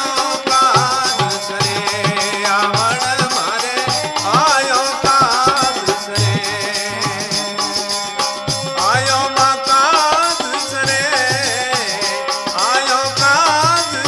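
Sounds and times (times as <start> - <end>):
light percussion: 0.0 - 14.0
steady drum beat: 0.5 - 9.3.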